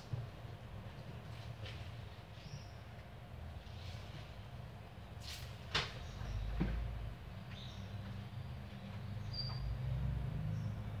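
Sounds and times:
birds chirping: 0:07.5 - 0:11.0.

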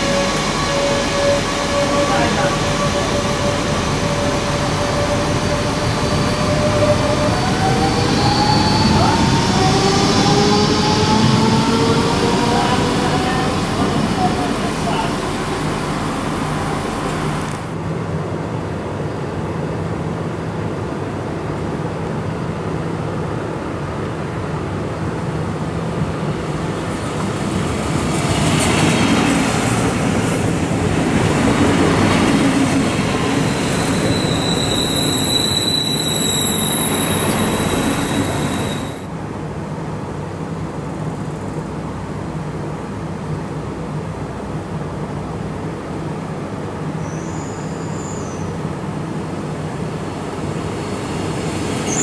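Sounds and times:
diesel train engine hum: 0:00.0 - 0:52.0
high steady squeal: 0:33.1 - 0:39.1.

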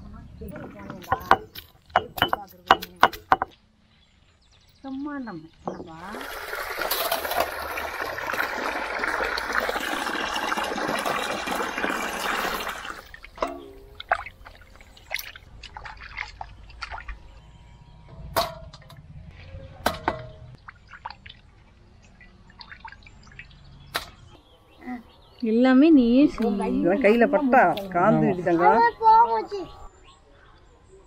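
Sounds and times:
running water splashing: 0:06.0 - 0:17.3.

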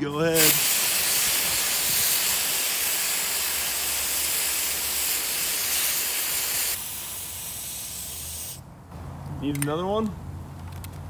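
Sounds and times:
compressed air duster hissing: 0:00.2 - 0:08.6.

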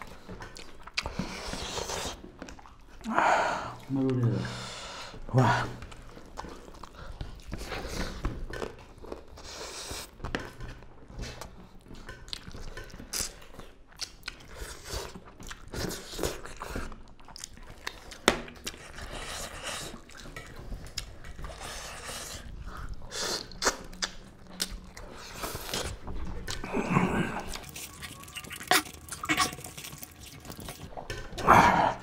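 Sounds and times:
people chewing and crunching: 0:00.0 - 0:32.0.

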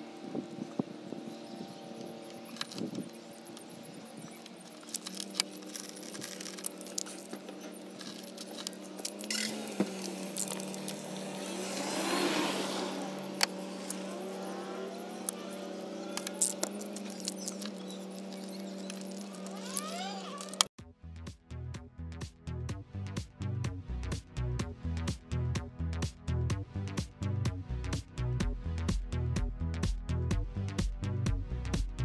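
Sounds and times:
glass fragments tinkling: 0:04.2 - 0:11.5.

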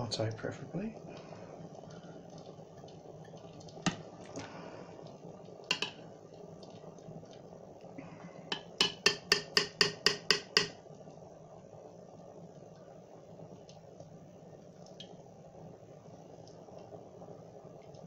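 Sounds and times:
metal spoon tapping steel pot: 0:05.7 - 0:06.0, 0:08.5 - 0:10.8.

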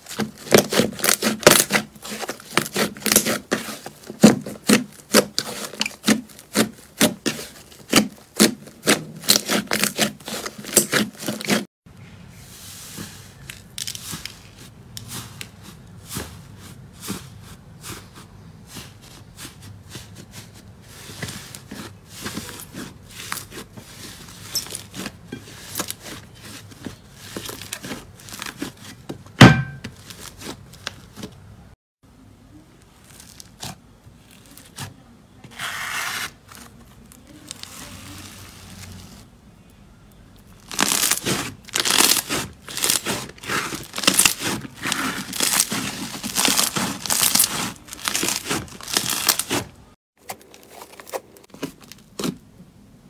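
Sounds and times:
loud pop: 0:29.4 - 0:29.8
slime squishing and popping: 0:40.7 - 0:49.6.

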